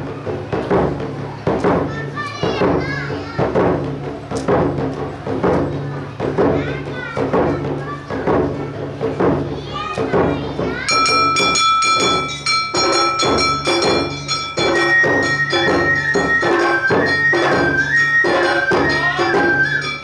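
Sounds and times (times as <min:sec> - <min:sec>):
drums beating: 0:00.0 - 0:20.0
high flute melody: 0:14.6 - 0:20.0.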